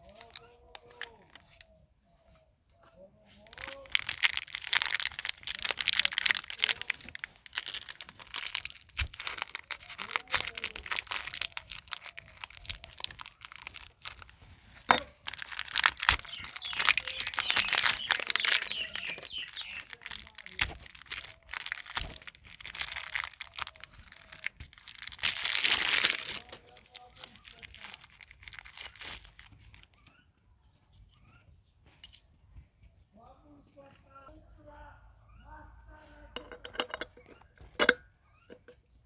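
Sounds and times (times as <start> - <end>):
plastic wrapper crinkling and tearing: 0.0 - 1.6, 3.3 - 30.2
sharp plastic crack: 3.5 - 30.0.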